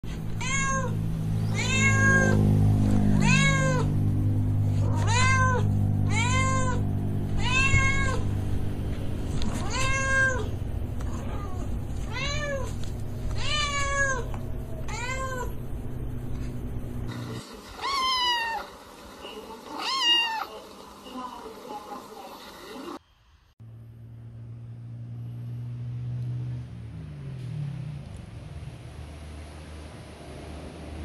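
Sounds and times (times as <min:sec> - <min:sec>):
cat meowing: 0:00.3 - 0:02.4, 0:03.1 - 0:03.9, 0:04.8 - 0:08.2, 0:09.4 - 0:12.7, 0:13.3 - 0:15.6, 0:17.8 - 0:18.7, 0:19.7 - 0:20.5.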